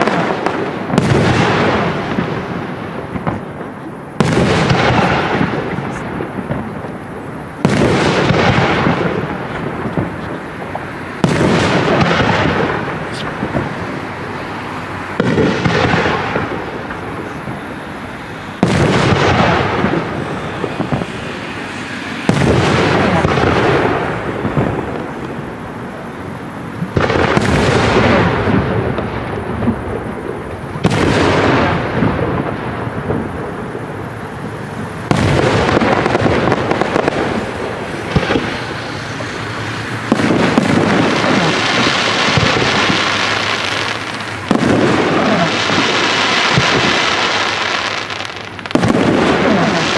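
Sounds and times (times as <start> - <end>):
crackling of firework stars: 0.0 - 49.9
firework shells bursting: 15.1 - 25.8, 34.8 - 49.9.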